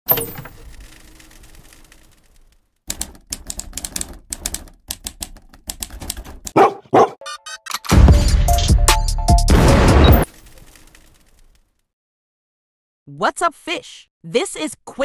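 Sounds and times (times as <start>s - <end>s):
rapid ticking: 0.8s - 6.6s
typewriter key clacks: 2.9s - 6.6s
loud sudden sound: 9.5s - 10.3s.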